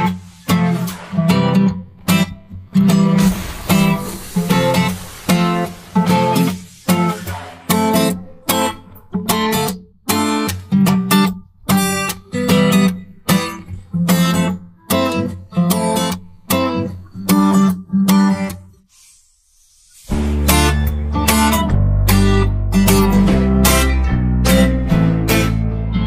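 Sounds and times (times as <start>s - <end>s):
strummed guitar chords: 20.1s - 26.0s.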